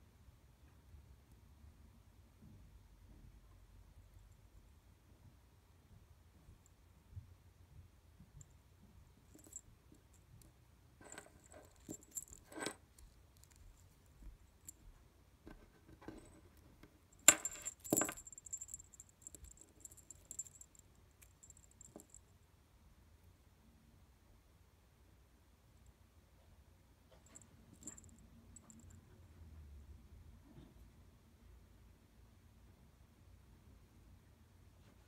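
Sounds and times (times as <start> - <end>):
small jingle bells jingling: 9.3 - 10.3, 11.0 - 14.9, 17.2 - 22.3, 27.2 - 28.8
charms clicking on wooden table: 17.2 - 20.7.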